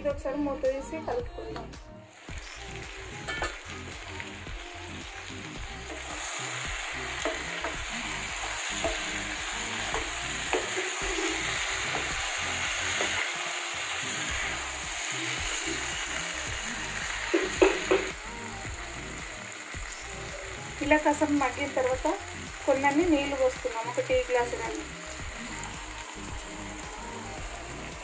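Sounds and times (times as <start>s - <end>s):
curry sizzling in frying pan: 2.1s - 28.0s
spatula scraping and tapping pan: 9.9s - 12.2s.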